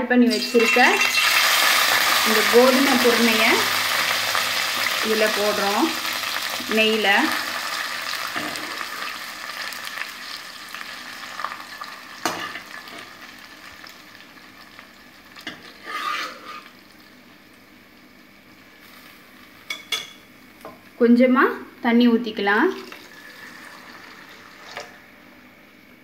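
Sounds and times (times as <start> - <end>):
grains sizzling in hot fat: 0.2 - 21.0, 22.7 - 25.4
spoon knocking and scraping pan: 12.2 - 13.1.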